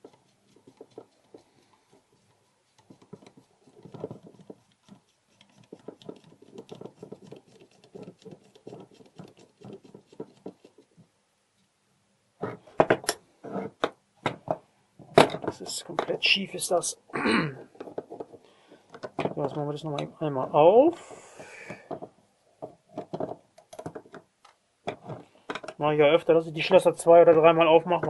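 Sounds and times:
small metal clicks and scrapes: 0.0 - 11.0.

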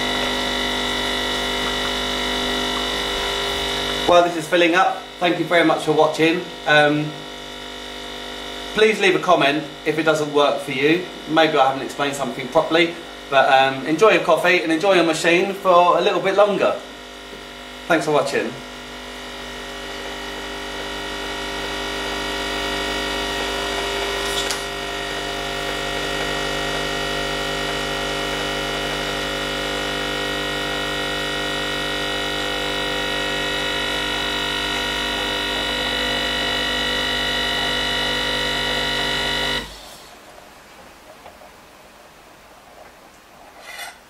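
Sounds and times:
espresso machine pump buzzing: 0.0 - 40.5.

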